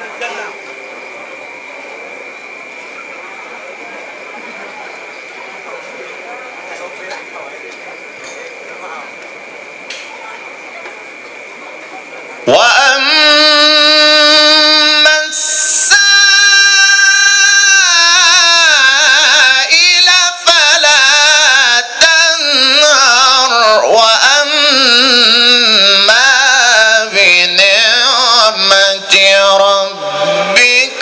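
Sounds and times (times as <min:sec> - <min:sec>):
man chanting into a microphone: 0:12.5 - 0:31.0.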